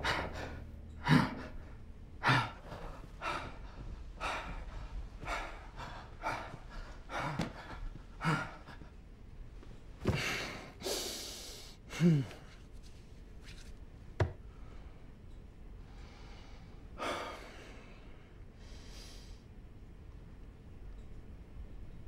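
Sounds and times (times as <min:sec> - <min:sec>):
man breathing hard: 0:00.0 - 0:09.0, 0:10.0 - 0:12.5, 0:15.9 - 0:19.5.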